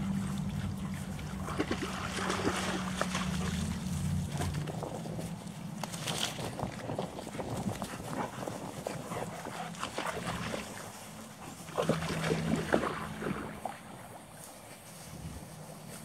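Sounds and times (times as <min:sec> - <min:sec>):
low steady hum: 0:00.0 - 0:16.0
dry grass rustling and crackling: 0:14.4 - 0:16.0.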